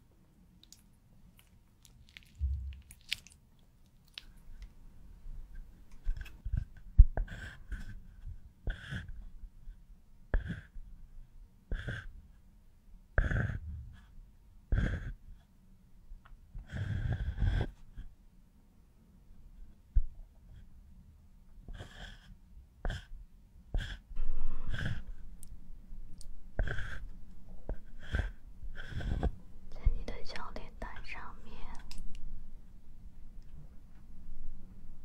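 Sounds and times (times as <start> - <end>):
dull low thud: 2.4 - 2.9
pencil strokes scratching: 24.6 - 25.2, 26.6 - 31.8.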